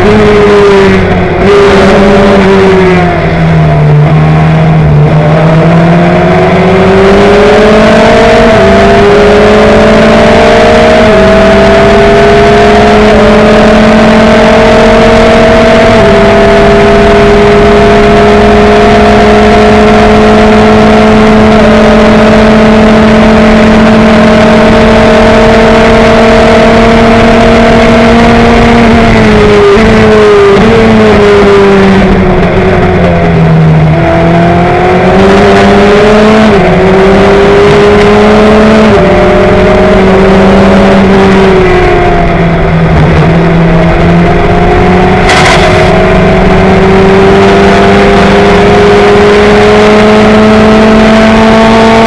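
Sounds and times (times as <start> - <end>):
race car engine accelerating: 0.0 - 52.0
wind rush: 41.1 - 49.2.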